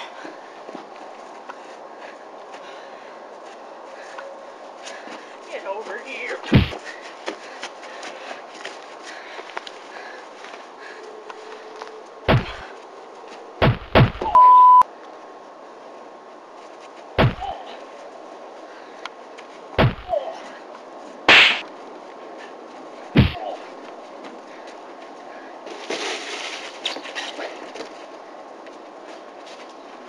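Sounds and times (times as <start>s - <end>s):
punch sound effects: 6.5s - 6.8s, 12.3s - 12.6s, 13.6s - 14.4s, 17.2s - 17.5s, 19.8s - 20.2s, 21.3s - 21.6s, 23.2s - 23.4s
short steady beep: 14.2s - 14.9s.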